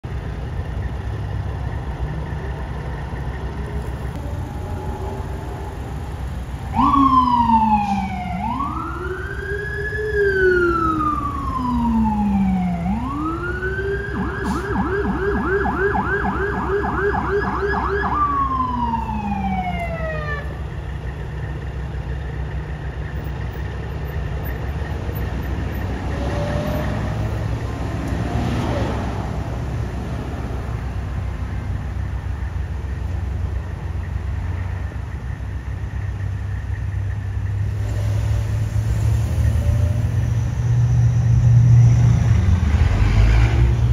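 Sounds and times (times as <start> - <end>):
traffic rumble: 0.0 - 43.9
emergency vehicle siren: 0.2 - 43.9.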